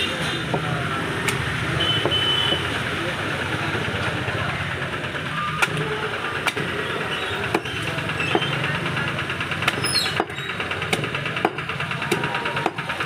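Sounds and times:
steady engine-like drone: 0:00.0 - 0:13.0
meat cleaver chopping on wood: 0:06.4 - 0:06.8, 0:07.4 - 0:08.7, 0:09.6 - 0:13.0.

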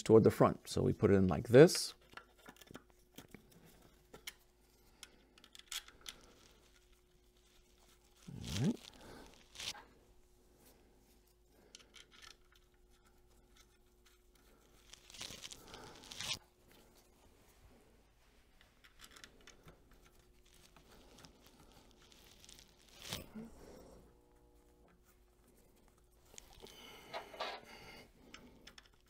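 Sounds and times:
faint steady hum: 0:00.0 - 0:29.0
gloved hands crinkling paper towel: 0:13.7 - 0:17.1.

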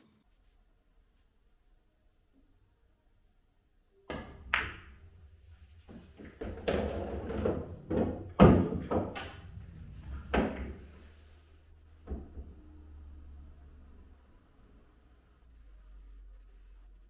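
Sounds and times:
cue striking ball: 0:04.1 - 0:05.2, 0:05.8 - 0:11.0
pool balls knocking: 0:04.1 - 0:11.1.

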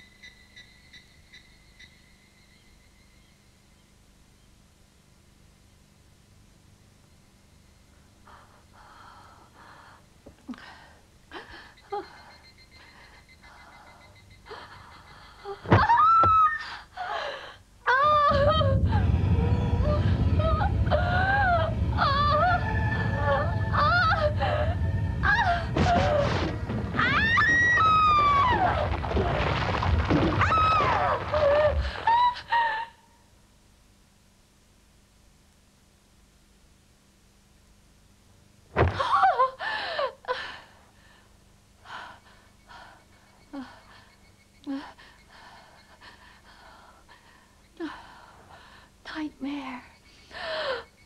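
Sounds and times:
faint high steady tone: 0:00.0 - 0:08.8, 0:11.3 - 0:15.4
girl breathing heavily with gasps: 0:16.6 - 0:17.6, 0:39.6 - 0:43.0, 0:50.3 - 0:50.9
steady low rumble: 0:17.6 - 0:32.6
eerie wailing cries: 0:17.9 - 0:29.4, 0:30.3 - 0:33.2.

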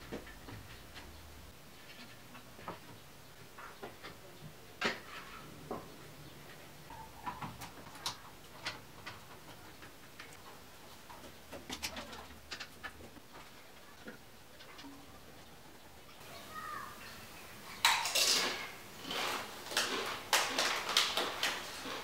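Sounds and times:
wooden strips clacking together: 0:06.4 - 0:15.7, 0:17.8 - 0:22.0.

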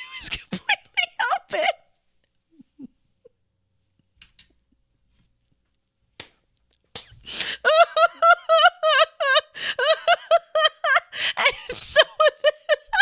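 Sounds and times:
woman laughing: 0:00.0 - 0:01.9, 0:02.5 - 0:03.4, 0:07.3 - 0:13.0.

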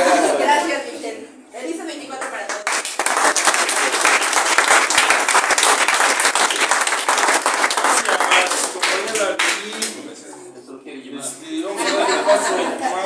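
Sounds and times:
group applauding: 0:02.1 - 0:10.1.

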